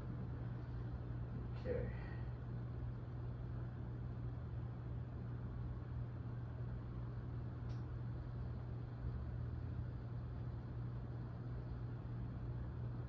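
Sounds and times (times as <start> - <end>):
steady low hum: 0.0 - 13.0
faint click: 7.6 - 7.9.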